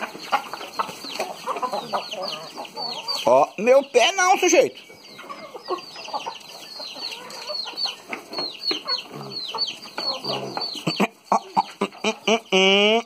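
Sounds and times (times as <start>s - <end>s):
chickens clucking: 0.0s - 13.0s
piglets grunting: 10.1s - 13.0s.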